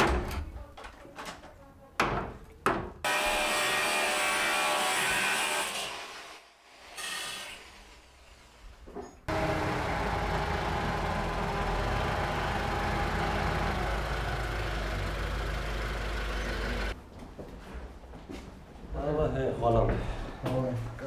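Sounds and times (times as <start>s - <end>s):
car engine running at low speed: 9.3s - 17.0s.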